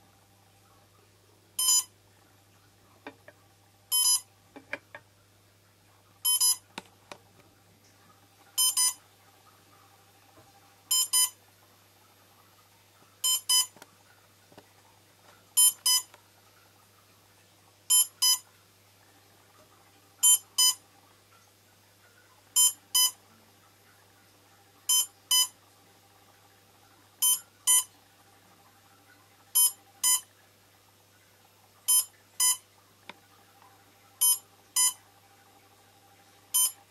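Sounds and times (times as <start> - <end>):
high-pitched electronic double beeps: 1.6 - 1.9, 3.9 - 4.2, 6.3 - 6.6, 34.2 - 35.0, 36.6 - 36.8.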